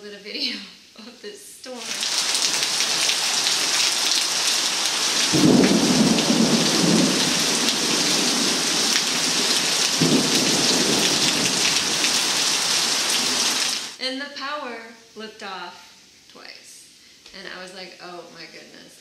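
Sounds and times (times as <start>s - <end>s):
heavy rain pouring: 1.8s - 14.0s
thunder rumbling: 1.9s - 14.0s.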